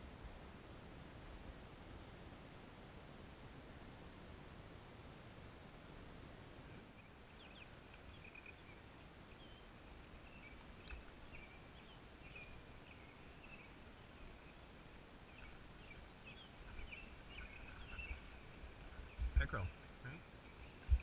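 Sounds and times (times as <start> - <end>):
low steady hiss: 0.0 - 21.0
birds chirping and warbling: 6.9 - 21.0.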